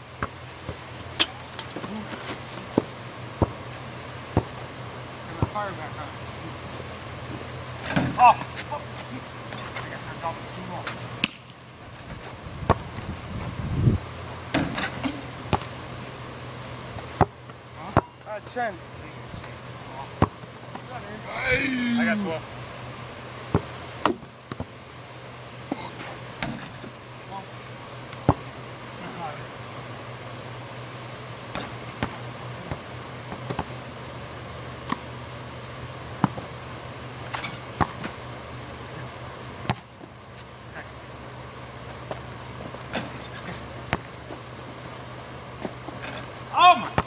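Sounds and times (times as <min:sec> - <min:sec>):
steady low hum: 0:00.0 - 0:47.0
basketball bouncing thuds: 0:04.3 - 0:04.6, 0:43.9 - 0:44.1.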